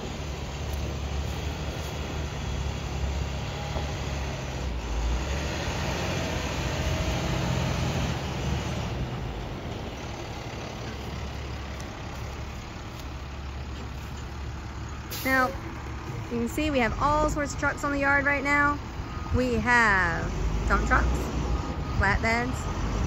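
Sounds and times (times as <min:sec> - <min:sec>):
diesel truck engine running: 0:00.0 - 0:23.0
tyres on gravel: 0:09.1 - 0:17.2.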